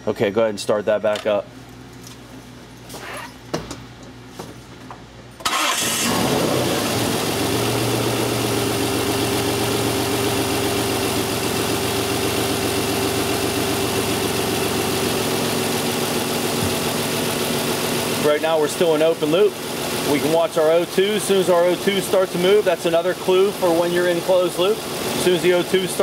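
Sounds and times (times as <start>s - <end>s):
car engine starting and idling: 5.4s - 26.0s.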